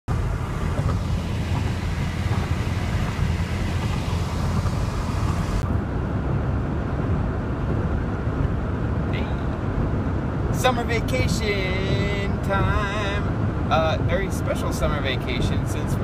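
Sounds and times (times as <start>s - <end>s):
road noise low rumble: 0.0s - 16.0s
wind hiss: 0.1s - 5.6s.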